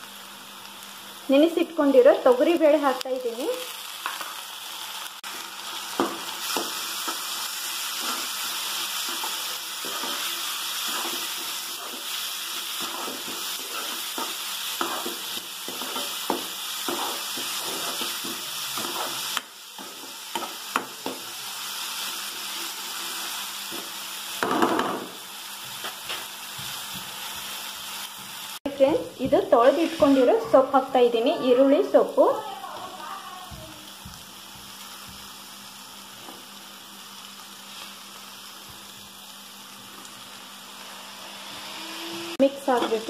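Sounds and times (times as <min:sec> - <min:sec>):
food sizzling in oil: 0:00.0 - 0:43.0
spatula scraping and tapping pan: 0:09.0 - 0:21.2.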